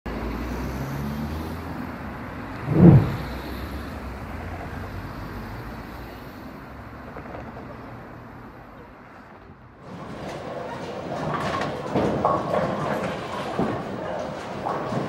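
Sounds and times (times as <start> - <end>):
road traffic rumble: 0.1 - 9.4
vehicle whoosh: 2.5 - 3.8.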